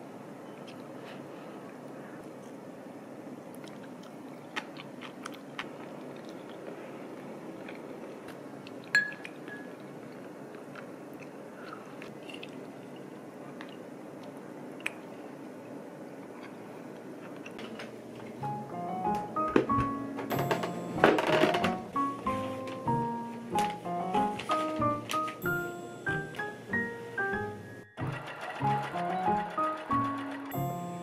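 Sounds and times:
person chewing: 0:03.6 - 0:15.1
clink against ceramic dish: 0:09.0 - 0:09.7
room hiss: 0:17.9 - 0:28.1
utensils clicking on dishes: 0:28.0 - 0:31.0.

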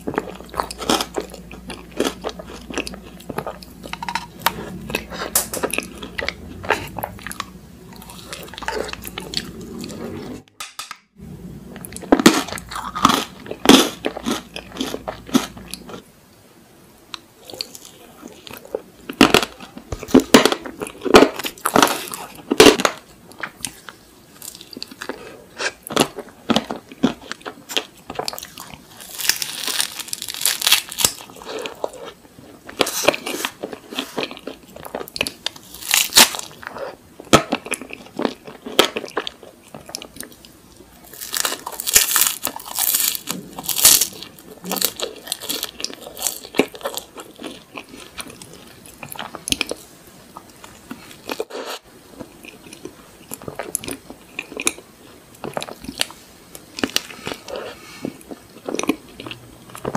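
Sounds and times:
wet chewing and mouth sounds: 0:00.0 - 0:10.4, 0:17.4 - 0:59.9
crunching ice cream cone: 0:24.4 - 0:36.7, 0:37.4 - 0:49.8.

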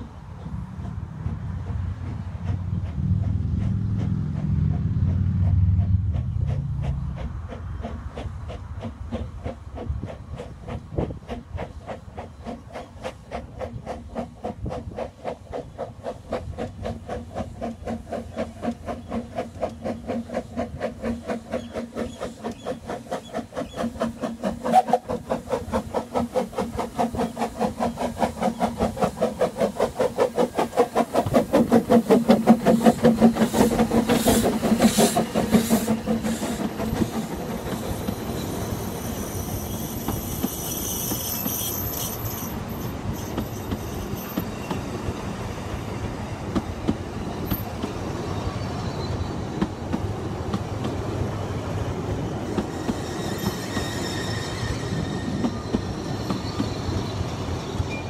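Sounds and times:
steam train passing: 0:00.0 - 0:58.0
steam hiss: 0:07.8 - 0:50.2.

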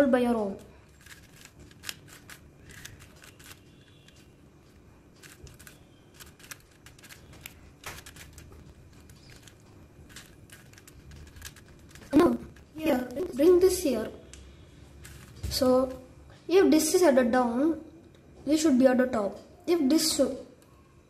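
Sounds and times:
puzzle cube clicks and rattles: 0:00.6 - 0:13.3, 0:15.0 - 0:15.4.

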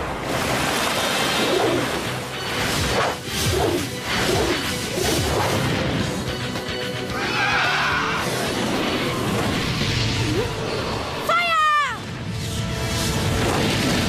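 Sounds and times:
water jet rushing and spraying: 0:00.0 - 0:05.7
background music: 0:00.0 - 0:14.0.

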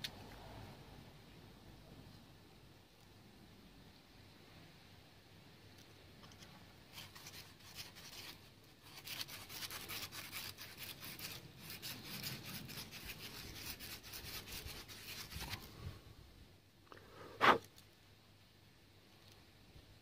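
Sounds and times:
abrasive cloth scratching tubing: 0:06.9 - 0:15.7.

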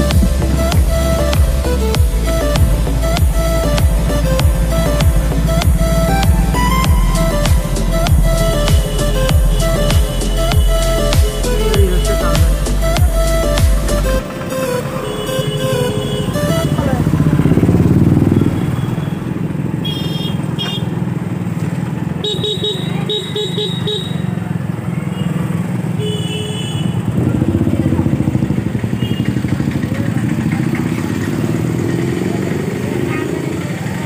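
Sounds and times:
busy town traffic: 0:00.0 - 0:34.0
motorcycle engine running: 0:00.0 - 0:34.0
vehicle horns beeping: 0:02.0 - 0:13.6, 0:14.2 - 0:21.1, 0:22.2 - 0:32.2.

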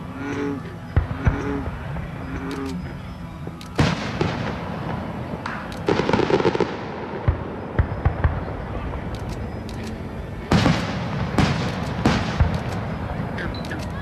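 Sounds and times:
firework crackling: 0:03.5 - 0:14.0
firework bang: 0:10.5 - 0:12.6.

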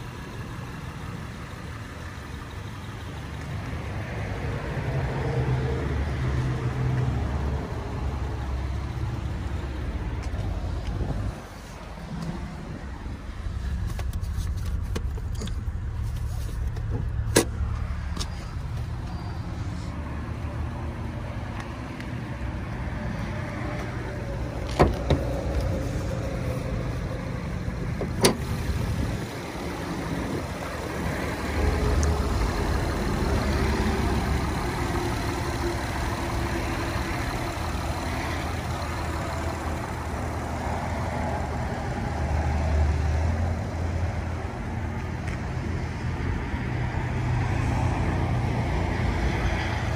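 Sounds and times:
steady low rumble: 0:07.2 - 0:42.2
hood latch clicks: 0:28.0 - 0:28.6.

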